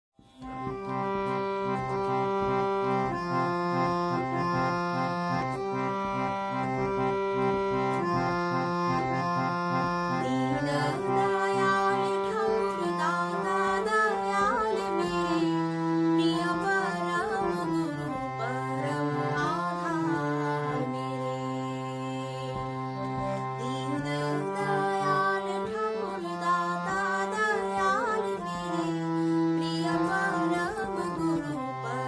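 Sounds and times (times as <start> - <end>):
held chords on reed keyboard: 0.2 - 32.0.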